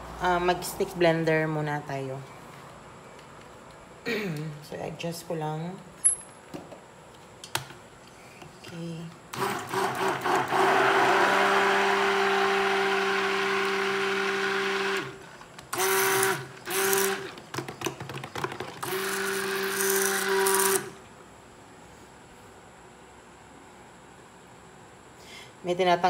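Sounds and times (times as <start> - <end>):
stick blender running: 9.3 - 17.4, 18.6 - 21.0.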